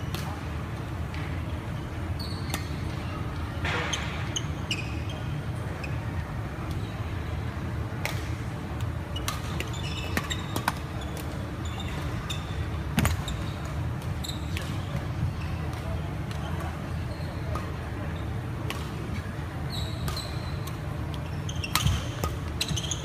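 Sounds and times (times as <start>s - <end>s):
shoes squeaking on wooden court: 2.2s - 3.0s, 3.6s - 6.1s, 9.1s - 15.9s, 19.6s - 23.0s
rackets striking shuttlecock: 21.7s - 22.8s.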